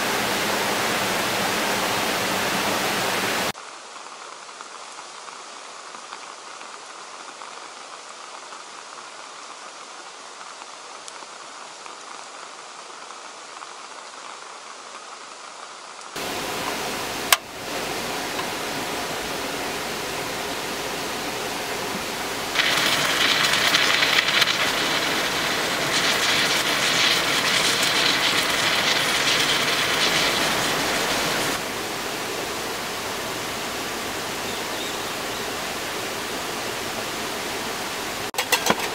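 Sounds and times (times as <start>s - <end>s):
rain on a wet road: 0.0s - 38.8s
gas stove hissing: 16.2s - 38.9s.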